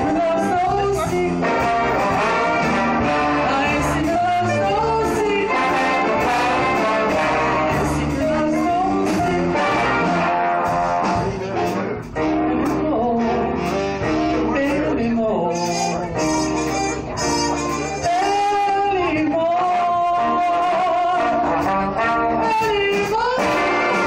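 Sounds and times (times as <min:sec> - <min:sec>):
woman singing into microphone: 0:00.0 - 0:02.3, 0:03.4 - 0:09.8, 0:12.5 - 0:13.6, 0:14.5 - 0:21.5, 0:22.4 - 0:24.0
drum kit with cymbals: 0:00.0 - 0:14.9
live band playing: 0:00.0 - 0:24.0.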